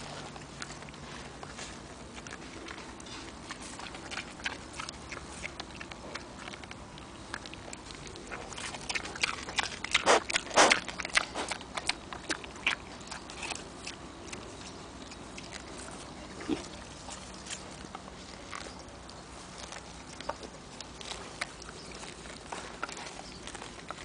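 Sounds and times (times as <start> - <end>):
pig chewing grass: 0.0 - 24.0.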